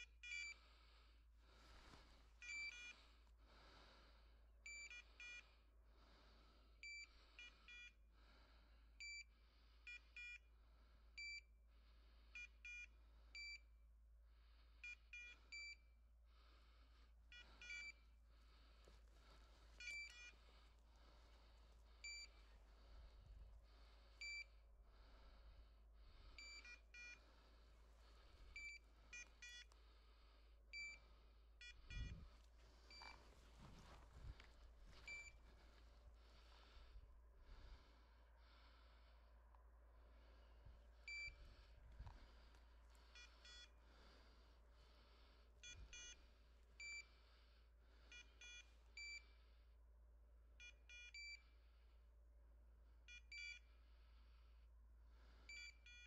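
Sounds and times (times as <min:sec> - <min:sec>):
electronic collar beeps: 0:00.0 - 0:00.6, 0:02.4 - 0:03.0, 0:04.7 - 0:05.5, 0:06.8 - 0:08.0, 0:09.0 - 0:09.3, 0:11.2 - 0:11.5, 0:12.4 - 0:13.7, 0:14.8 - 0:15.8, 0:17.3 - 0:18.1, 0:19.8 - 0:20.4, 0:22.0 - 0:22.4, 0:24.2 - 0:24.5, 0:26.4 - 0:27.2, 0:28.5 - 0:29.7, 0:30.7 - 0:32.3, 0:32.9 - 0:33.8, 0:35.0 - 0:35.4, 0:41.1 - 0:41.4, 0:43.2 - 0:43.7, 0:45.6 - 0:46.2, 0:46.8 - 0:47.1, 0:48.1 - 0:49.3, 0:50.6 - 0:51.6, 0:53.1 - 0:53.7, 0:55.5 - 0:56.0.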